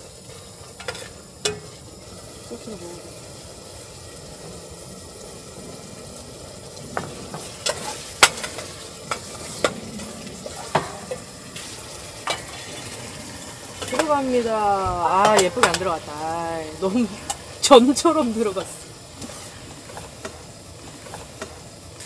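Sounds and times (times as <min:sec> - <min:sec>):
onions sizzling in oil: 0:00.0 - 0:22.0
utensil clinking against pot: 0:15.2 - 0:16.0.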